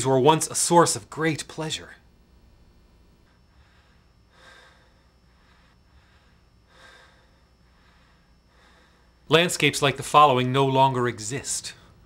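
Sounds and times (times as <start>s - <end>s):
faint breaths: 3.3s - 9.3s.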